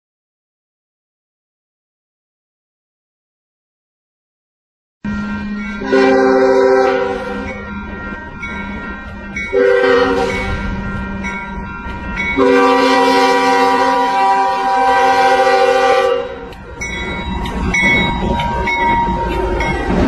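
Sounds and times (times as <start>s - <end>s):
train horn blasts: 5.1s - 7.7s, 9.4s - 10.8s, 12.4s - 16.6s
train running rumble: 5.1s - 20.0s.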